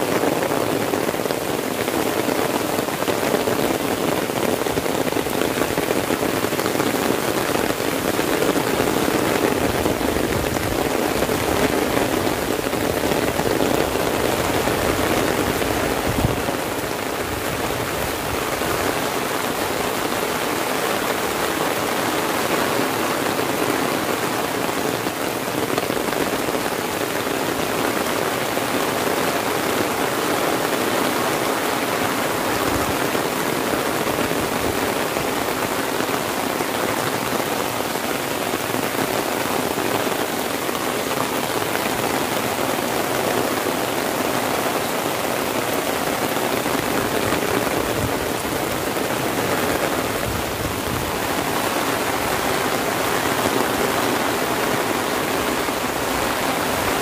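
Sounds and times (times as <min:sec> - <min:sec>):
heavy rain on grass and umbrella: 0:00.0 - 0:57.0.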